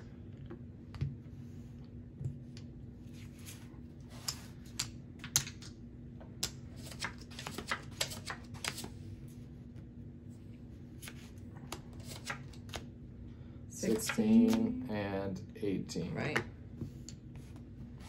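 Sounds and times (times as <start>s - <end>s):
playing cards snapping: 11.0s - 12.9s.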